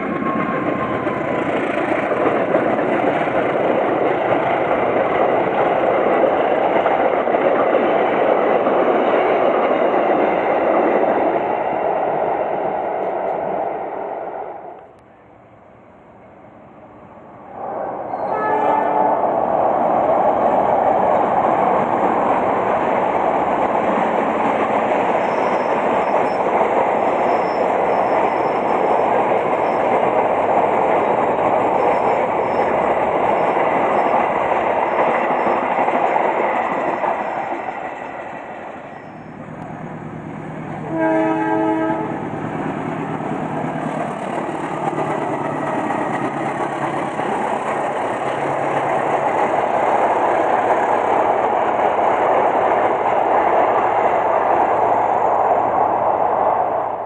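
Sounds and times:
train wheels rushing on rails: 0.0s - 57.0s
train horn blast: 18.1s - 19.2s, 40.8s - 42.3s.

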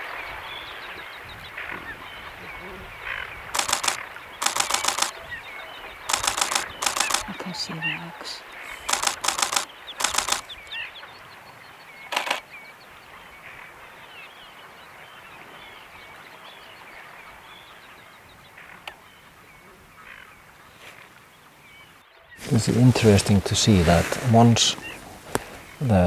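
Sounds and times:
faint bird chirping: 0.0s - 26.0s
steady outdoor hiss: 0.0s - 26.0s
camera shutters firing: 3.6s - 5.2s, 6.1s - 7.4s, 8.8s - 10.5s, 12.1s - 12.4s.

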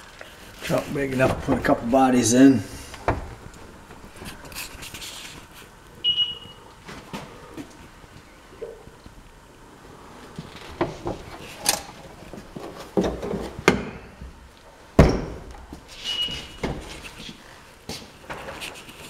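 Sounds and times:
trunk lid clunks and thumps: 3.0s - 4.0s.

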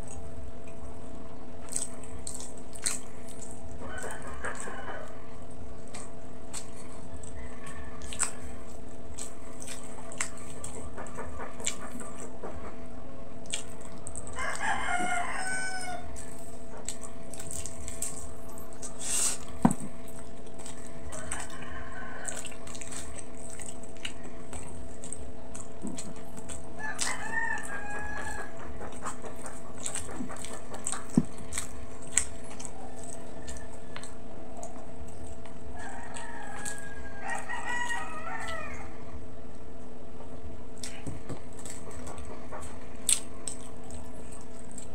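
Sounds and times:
steady hum: 0.0s - 44.9s
chewing clicks and smacks: 1.6s - 12.8s, 13.4s - 15.2s, 16.0s - 38.8s, 40.7s - 44.9s
rooster crowing: 3.8s - 5.4s, 7.4s - 8.6s, 14.3s - 16.2s, 21.0s - 22.7s, 26.8s - 28.8s, 35.7s - 39.0s.

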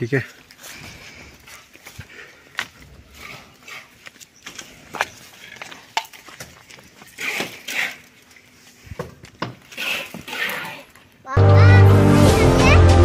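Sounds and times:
trowel scraping: 9.6s - 10.9s.

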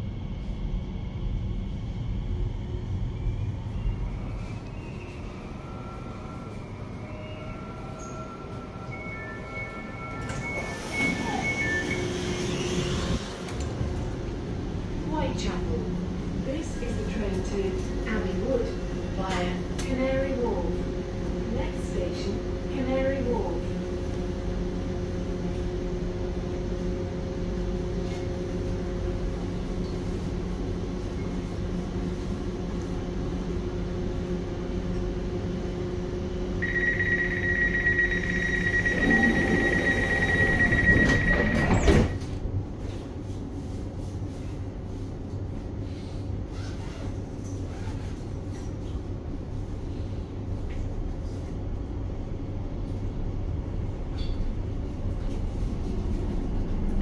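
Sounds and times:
door warning tone: 5.4s - 12.6s, 36.6s - 42.4s
doors sliding shut: 38.9s - 42.4s.

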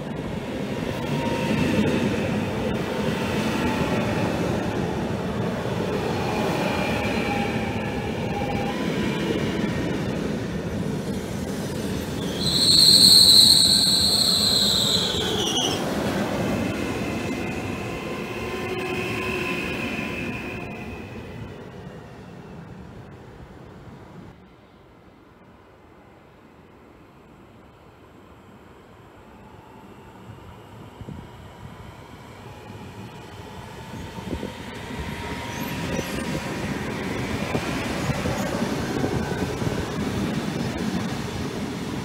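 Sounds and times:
train wheels rumbling on rail: 0.0s - 24.3s, 30.3s - 42.0s
high-pitched train squeal: 6.2s - 9.3s, 11.9s - 16.0s, 32.4s - 38.5s.

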